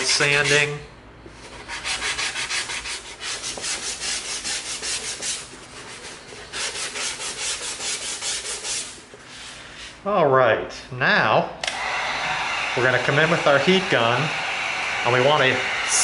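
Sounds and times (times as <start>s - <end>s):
sanding foam edge: 0.0s - 0.8s, 1.4s - 9.1s.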